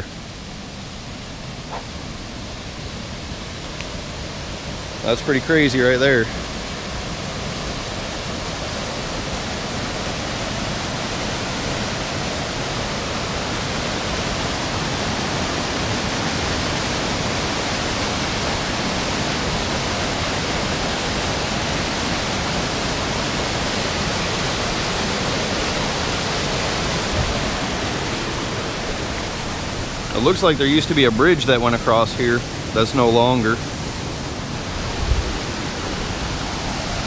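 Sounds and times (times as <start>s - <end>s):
floodwater rushing: 0.0s - 37.0s.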